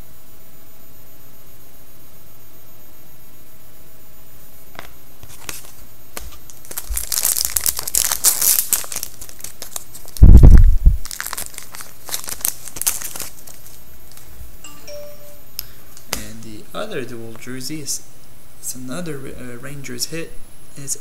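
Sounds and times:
wrapper tearing and crinkling: 0:05.2 - 0:14.4.

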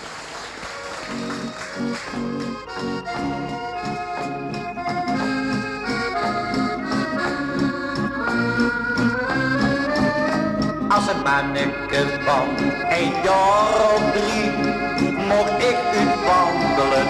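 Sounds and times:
instrumental song melody: 0:00.6 - 0:17.0
person singing: 0:10.8 - 0:17.0.

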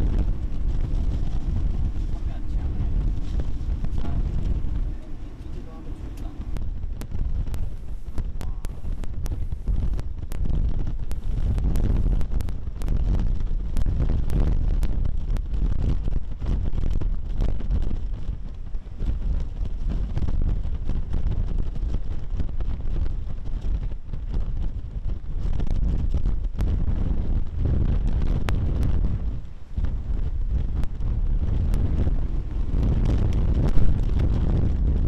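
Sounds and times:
sharp crackles: 0:00.0 - 0:35.0
wind buffeting microphone: 0:00.0 - 0:35.0.

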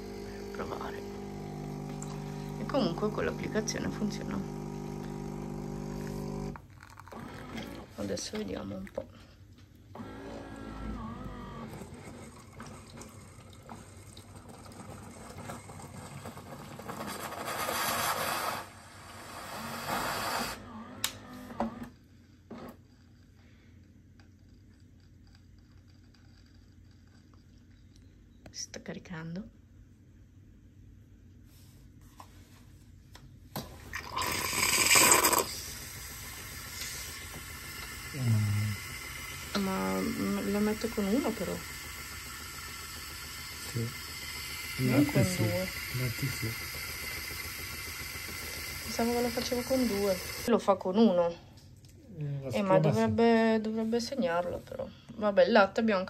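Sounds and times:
coffee machine pump humming: 0:00.0 - 0:28.4, 0:33.5 - 0:50.6
liquid hissing and gurgling: 0:33.8 - 0:50.5.

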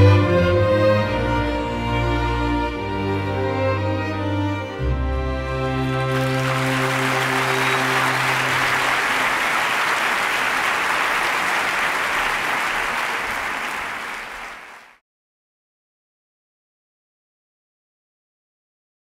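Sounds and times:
string orchestra chord: 0:00.0 - 0:09.3
audience applauding: 0:05.3 - 0:15.0.

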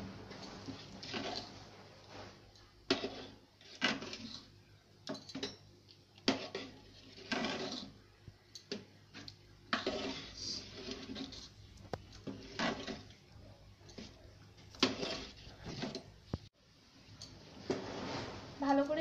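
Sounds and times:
ladle scraping through rice: 0:00.4 - 0:04.5, 0:06.2 - 0:08.0, 0:09.1 - 0:13.2, 0:13.9 - 0:16.0, 0:17.6 - 0:18.6.

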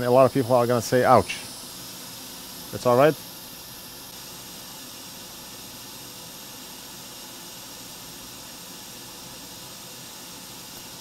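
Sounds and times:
hot air blower hiss: 0:00.0 - 0:11.0.

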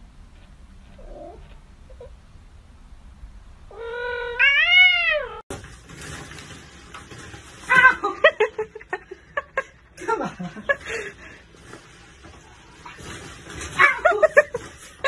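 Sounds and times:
person laughing: 0:07.8 - 0:11.3.

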